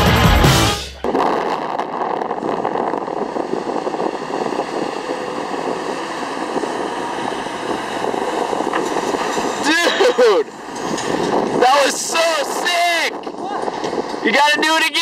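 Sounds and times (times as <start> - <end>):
motorboat engine running: 0.0 - 11.7.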